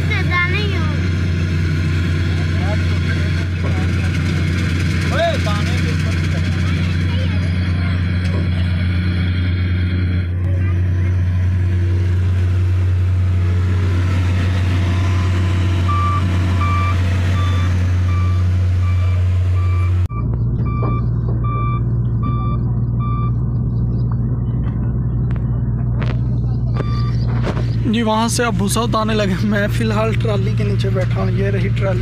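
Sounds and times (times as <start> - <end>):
diesel engine humming: 0.0 - 32.0
reversing alarm beeping: 15.8 - 23.4, 26.8 - 27.2.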